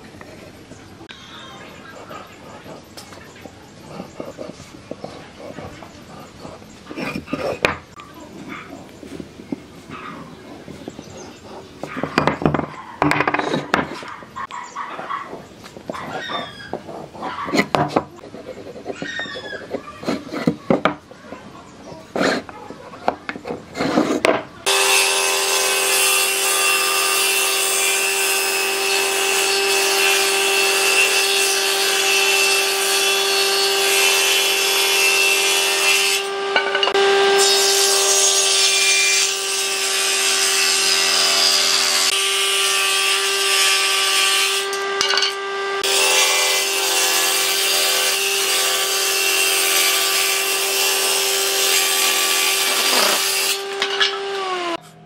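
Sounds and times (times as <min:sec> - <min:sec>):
saw cutting wood: 0:22.1 - 0:22.5, 0:23.4 - 0:54.8
table saw motor hum: 0:24.7 - 0:54.8.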